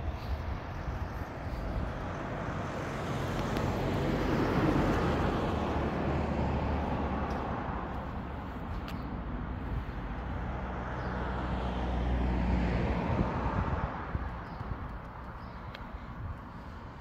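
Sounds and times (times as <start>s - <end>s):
vehicle passing: 1.4s - 14.5s.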